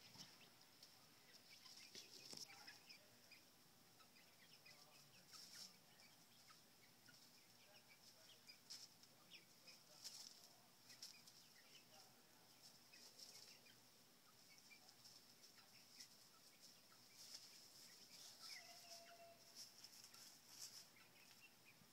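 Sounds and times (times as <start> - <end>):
chickens peeping and clucking: 0.0 - 21.9
rustling dry leaves: 5.2 - 6.5, 8.0 - 11.9, 12.5 - 21.5.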